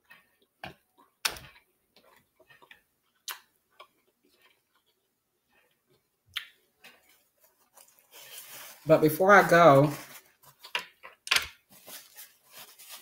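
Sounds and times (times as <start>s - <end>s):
eating clicks and smacks: 0.0s - 5.0s, 6.3s - 7.0s.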